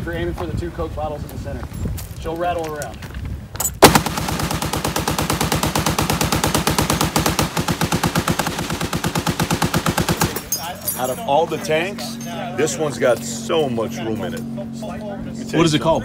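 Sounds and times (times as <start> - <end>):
machine gun automatic burst: 3.8 - 10.4.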